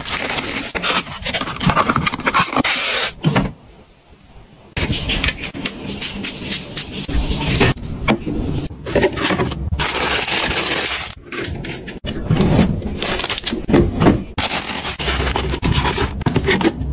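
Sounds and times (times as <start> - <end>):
rustling and scraping of packs: 8.9 - 13.7, 14.4 - 16.9.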